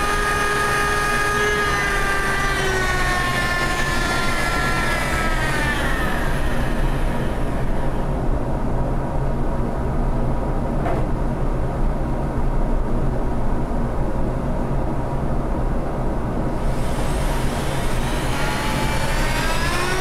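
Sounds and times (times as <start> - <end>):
dust collector droning: 0.0 - 10.5, 16.3 - 20.0.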